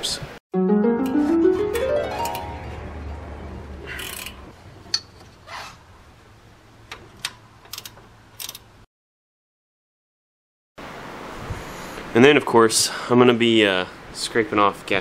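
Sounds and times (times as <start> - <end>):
wrench metallic clicks and scrapes: 7.2 - 8.7.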